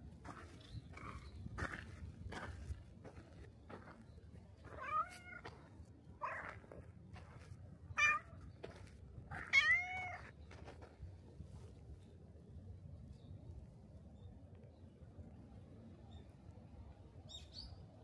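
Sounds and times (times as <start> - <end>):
cat meowing: 4.7 - 5.4, 6.2 - 6.6, 8.0 - 8.4, 9.3 - 10.3.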